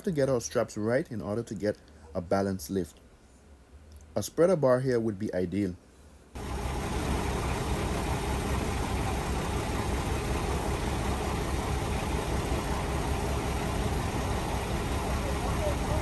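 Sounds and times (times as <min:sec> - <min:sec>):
diesel truck engine idling: 0:06.4 - 0:16.0.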